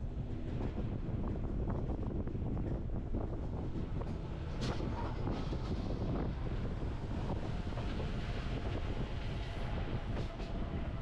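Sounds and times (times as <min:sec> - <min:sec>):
train wheels on rails: 0:00.1 - 0:11.0.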